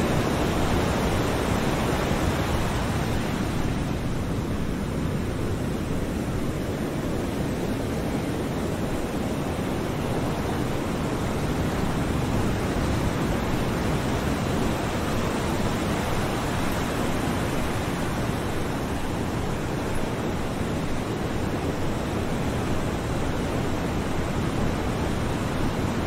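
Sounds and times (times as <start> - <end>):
ocean surf washing on shore: 0.0 - 26.0.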